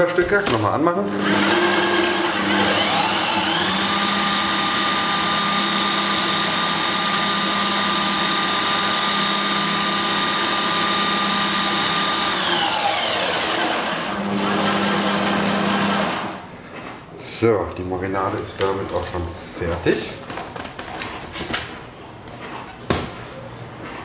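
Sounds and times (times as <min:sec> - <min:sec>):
blender motor whine: 0:01.1 - 0:16.4.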